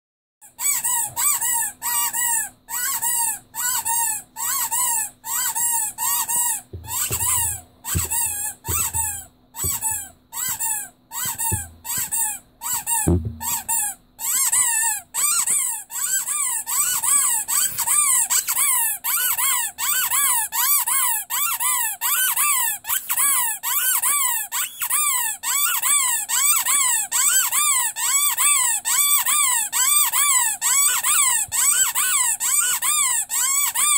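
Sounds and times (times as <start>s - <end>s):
rubber squeaky toy squeaking: 0.4s - 33.9s
low handling knocks: 6.7s - 10.1s, 11.3s - 12.1s, 13.1s - 13.7s.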